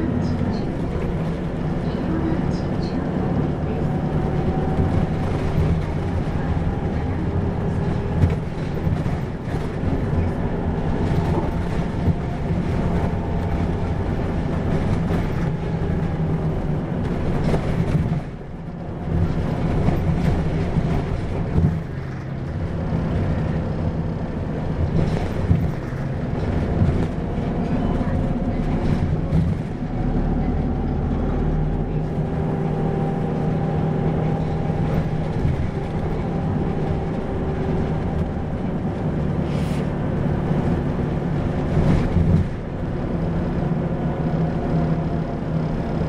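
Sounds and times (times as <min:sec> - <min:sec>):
bus diesel engine drone: 0:00.0 - 0:46.0.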